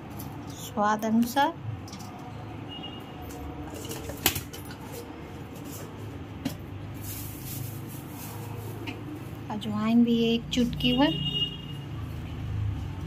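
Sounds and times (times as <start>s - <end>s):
soft rustle: 6.9s - 9.4s.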